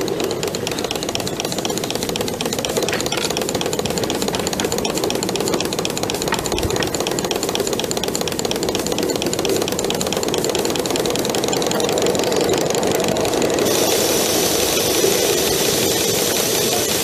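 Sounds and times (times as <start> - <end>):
steam locomotive chuffing: 0.0 - 17.0.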